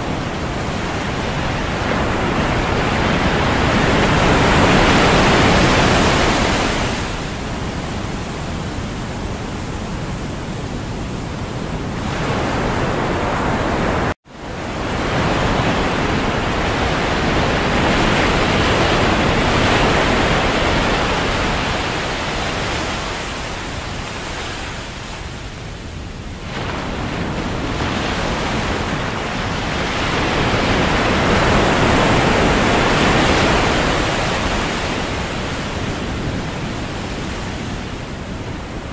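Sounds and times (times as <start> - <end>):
surf breaking on beach: 26.4 - 38.9.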